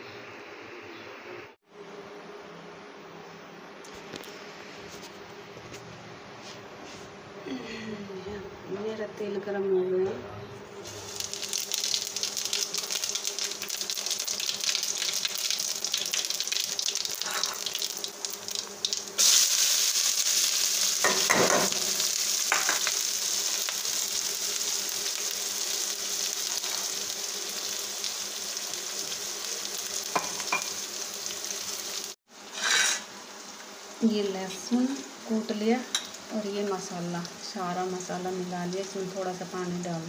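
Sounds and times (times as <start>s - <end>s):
onions sizzling in hot oil: 10.8s - 40.0s.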